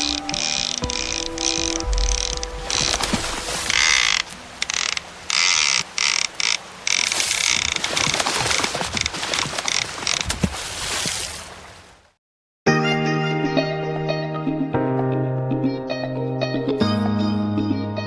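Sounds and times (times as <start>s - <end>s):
fishing reel ratcheting: 0.0s - 3.0s, 3.7s - 8.1s.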